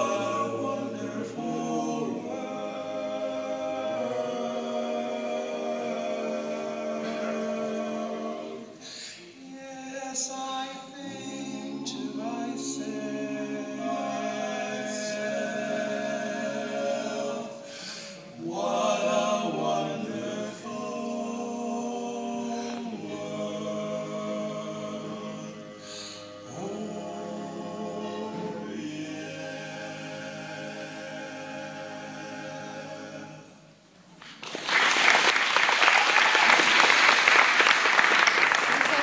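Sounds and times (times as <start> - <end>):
a cappella group singing chords: 0.0 - 34.2
applause: 34.2 - 39.0.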